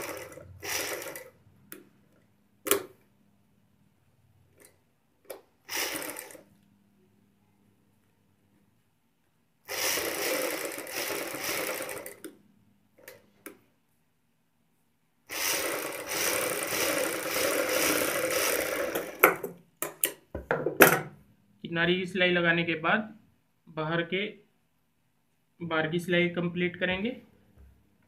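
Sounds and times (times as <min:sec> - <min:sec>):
sewing machine stitching: 0:00.0 - 0:01.4, 0:05.3 - 0:06.5, 0:09.7 - 0:12.3, 0:15.3 - 0:19.5.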